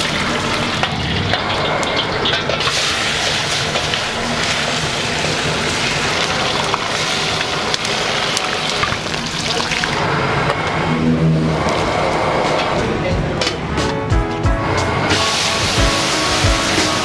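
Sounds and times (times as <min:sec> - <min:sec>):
food sizzling in a wok: 0:00.0 - 0:09.6, 0:15.1 - 0:17.0
gas burner roar: 0:00.0 - 0:17.0.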